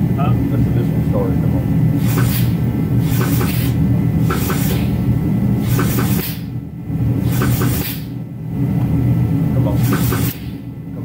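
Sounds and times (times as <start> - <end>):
low rumble of shop machinery: 0.0 - 11.0
short hissing puffs: 2.0 - 5.0, 5.6 - 6.5, 7.2 - 8.1, 9.8 - 10.6.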